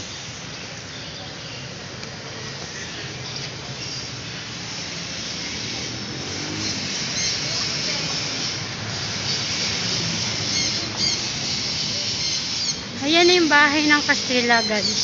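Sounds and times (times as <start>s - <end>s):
faint voices of passers-by: 0.0s - 15.0s
steady traffic noise: 0.0s - 15.0s.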